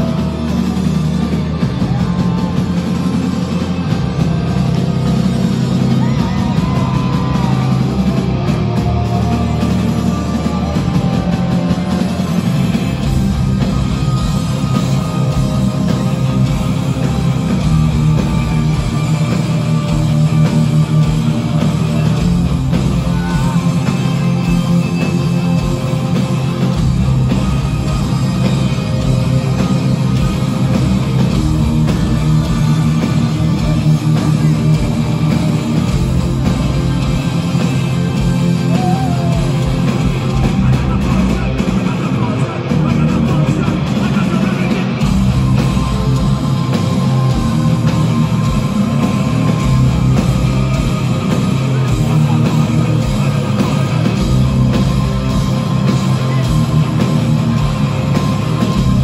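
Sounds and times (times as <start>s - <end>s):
metal band playing live: 0.0s - 59.0s.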